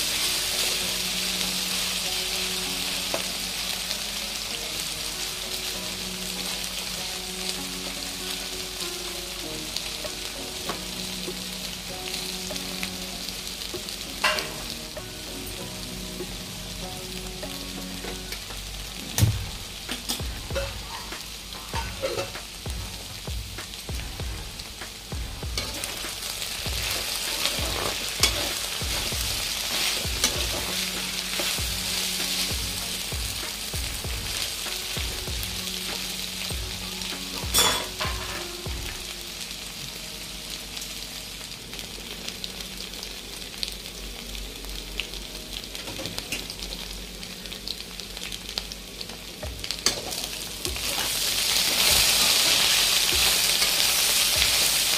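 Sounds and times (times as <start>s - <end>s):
vegetables sizzling in hot oil: 0.0s - 54.9s
spatula scraping and knocking pan: 19.1s - 23.0s, 24.0s - 35.2s.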